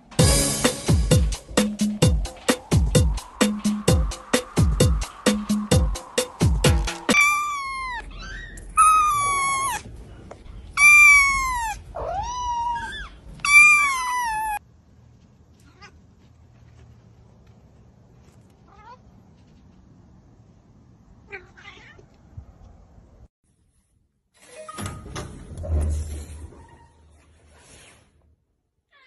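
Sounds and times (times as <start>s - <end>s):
music with a beat: 0.2s - 7.2s
kitten meowing: 7.1s - 9.8s, 10.8s - 14.6s.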